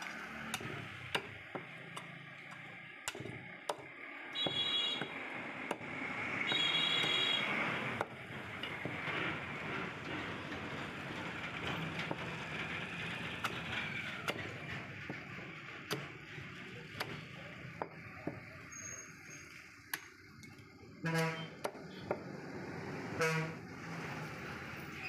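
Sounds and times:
street background noise: 0.0 - 25.0
vehicle horn honking: 4.4 - 5.1, 6.5 - 7.5, 21.0 - 21.6, 23.2 - 23.6.

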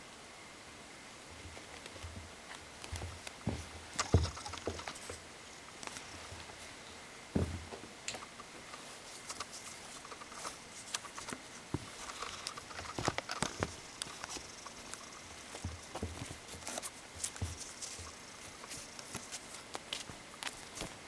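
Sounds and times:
paws thumping and scratching: 1.5 - 5.2, 9.2 - 21.0.

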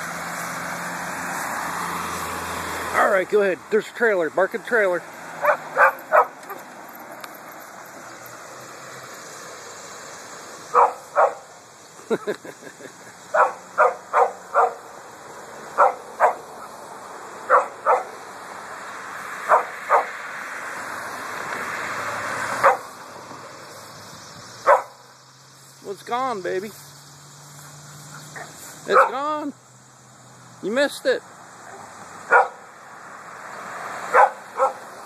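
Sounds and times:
truck road noise: 0.0 - 35.0
small dog barking: 5.4 - 6.6, 10.7 - 11.5, 13.3 - 14.9, 15.8 - 16.5, 17.5 - 18.2, 19.5 - 20.1, 22.6 - 22.9, 24.7 - 25.0, 28.2 - 29.2, 31.6 - 32.7, 34.1 - 34.9.

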